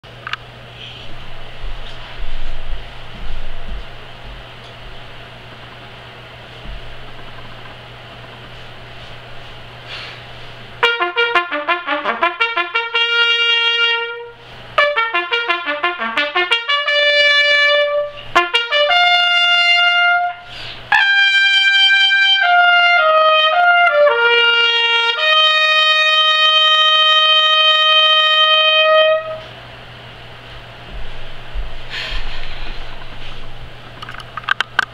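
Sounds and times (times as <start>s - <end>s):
solo trumpet: 10.8s - 29.6s.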